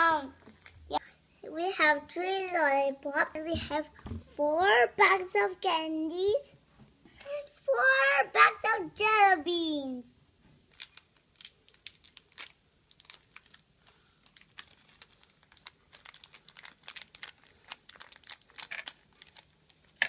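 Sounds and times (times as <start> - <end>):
plastic candy wrapper crinkling: 10.6 - 20.0.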